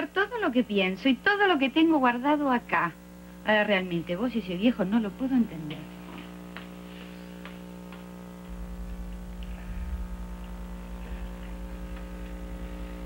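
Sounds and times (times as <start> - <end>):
electrical mains hum: 0.0 - 13.0
deep pulsing hum: 8.2 - 13.0.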